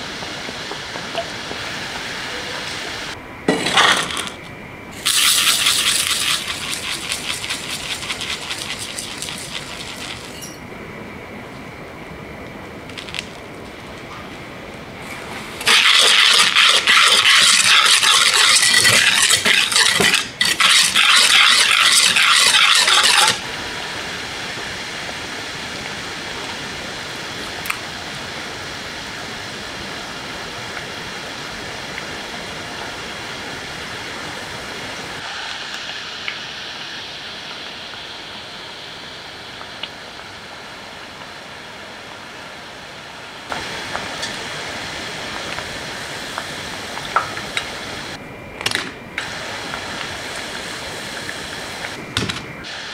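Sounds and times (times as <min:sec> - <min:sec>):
dough sizzling in hot oil: 0:04.9 - 0:10.6, 0:12.9 - 0:13.4, 0:15.0 - 0:27.1, 0:35.1 - 0:42.7
sugar rasping in a metal pan: 0:05.0 - 0:10.6, 0:15.6 - 0:23.4.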